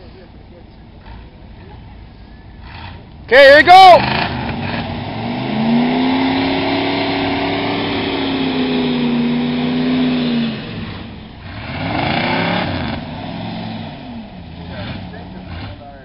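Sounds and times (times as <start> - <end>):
pickup truck engine revving: 2.6 - 16.0.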